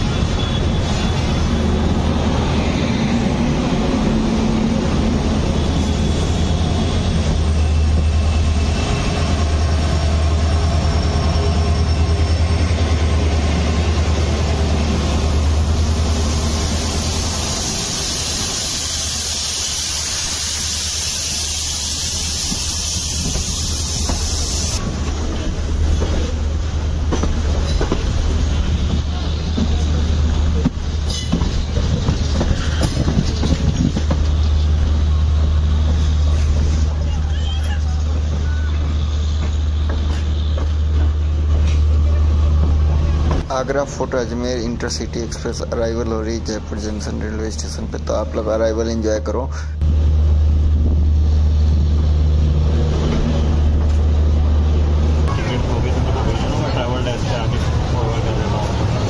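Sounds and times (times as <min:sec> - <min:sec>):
train wheels rumbling on rails: 0:00.0 - 0:59.0
wind: 0:00.0 - 0:59.0
loud high hiss: 0:15.8 - 0:24.8.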